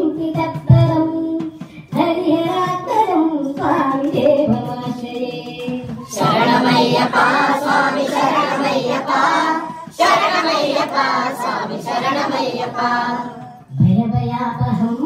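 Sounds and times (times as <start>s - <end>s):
group singing devotional song: 3.4s - 13.9s.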